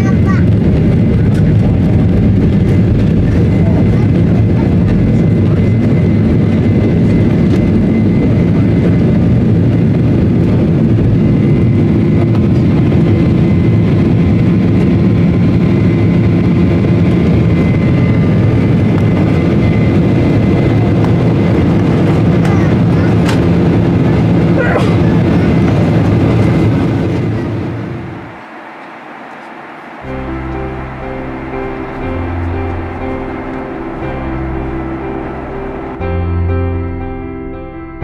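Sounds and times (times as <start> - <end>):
thin steady whine: 0.0 - 36.6
jet engines at takeoff power: 0.0 - 37.1.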